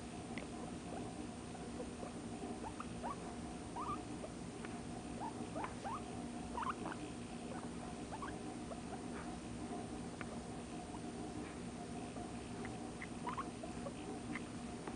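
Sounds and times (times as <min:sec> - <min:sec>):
low steady hum: 0:00.0 - 0:14.9
guinea pig squeaking: 0:00.9 - 0:04.4, 0:05.1 - 0:09.3, 0:12.5 - 0:14.9.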